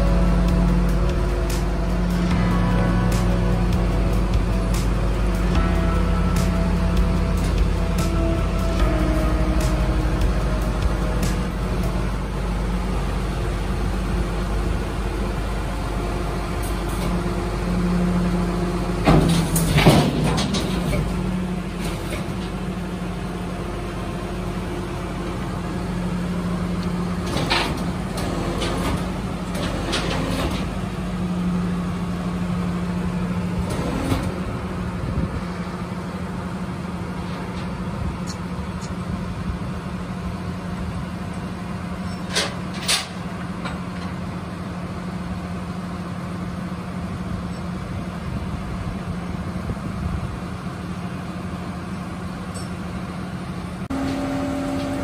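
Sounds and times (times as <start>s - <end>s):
truck engine running: 0.0s - 55.0s
metal clanks: 19.0s - 22.6s, 42.0s - 44.2s.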